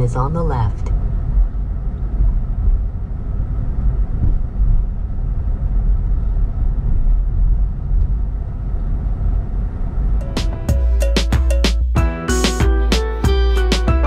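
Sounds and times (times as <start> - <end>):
tyre and road noise in car: 0.9 - 10.2.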